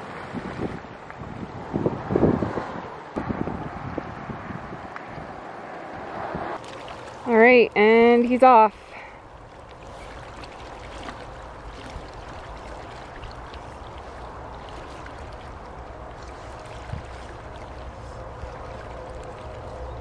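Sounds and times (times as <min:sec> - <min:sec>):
flowing river water: 0:00.0 - 0:20.0.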